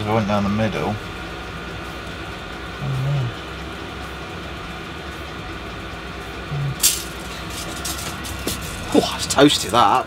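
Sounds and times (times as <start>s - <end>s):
heater blower drone: 0.0s - 10.0s.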